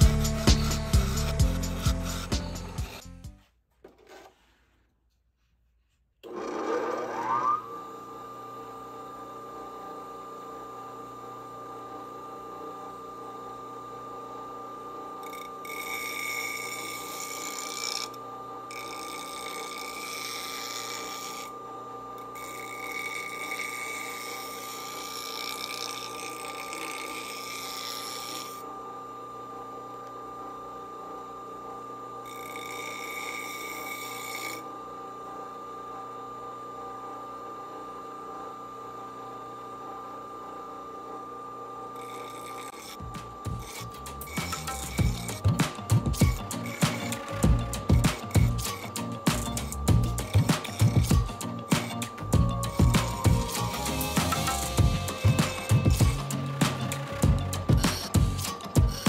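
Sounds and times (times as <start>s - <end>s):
bench grinder whining: 0.0s - 3.2s, 6.2s - 59.0s
hissing grinding of steel: 42.1s - 59.0s.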